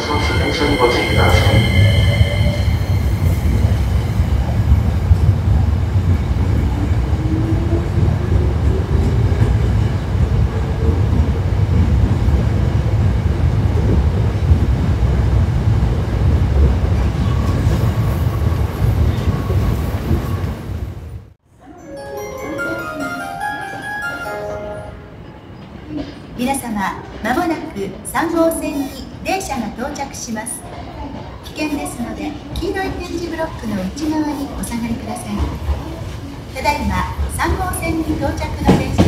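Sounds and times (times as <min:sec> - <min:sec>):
train wheels rumbling on rail: 0:00.0 - 0:21.4, 0:30.6 - 0:39.0.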